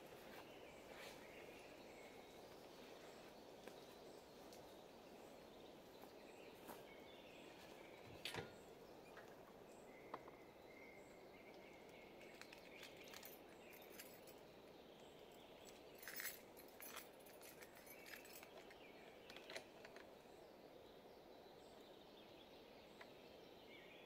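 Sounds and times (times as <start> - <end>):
small clicks: 12.2 - 13.4.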